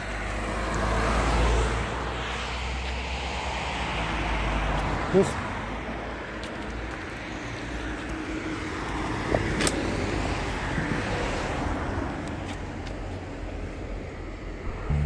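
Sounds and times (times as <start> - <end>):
motor vehicle passing: 14.6 - 15.0.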